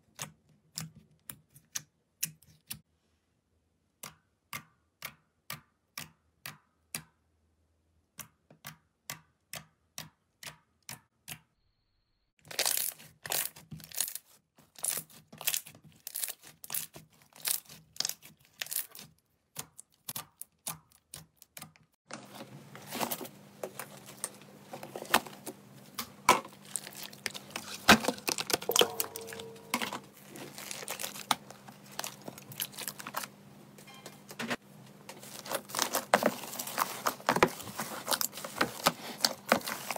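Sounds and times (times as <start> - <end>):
crackle of squished slime: 12.4 - 21.4, 30.2 - 33.3
low steady hum: 22.1 - 39.8.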